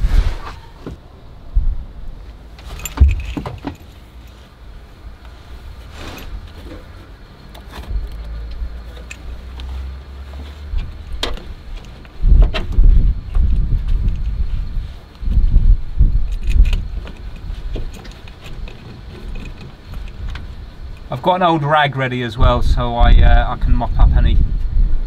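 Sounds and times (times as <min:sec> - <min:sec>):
metal chain links clinking: 0:02.6 - 0:04.3, 0:08.8 - 0:09.5, 0:16.2 - 0:20.3.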